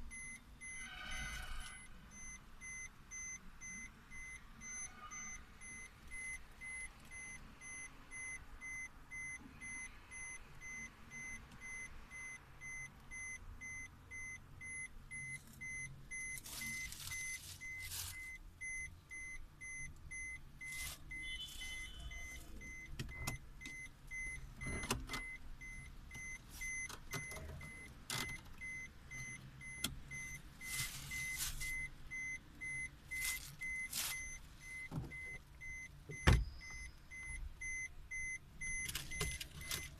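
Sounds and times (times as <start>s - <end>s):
short high warning beeps: 0.1s - 27.9s, 28.6s - 39.9s
rustles and clicks of handling: 15.4s - 18.4s, 30.6s - 35.4s.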